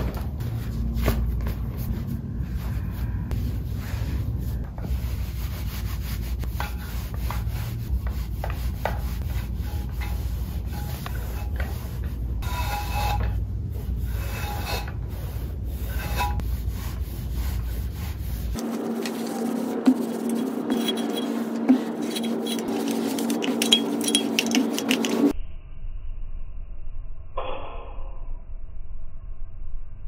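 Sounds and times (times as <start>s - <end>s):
steady hum: 0.0s - 25.3s
iron rubbing over fabric: 1.7s - 25.3s.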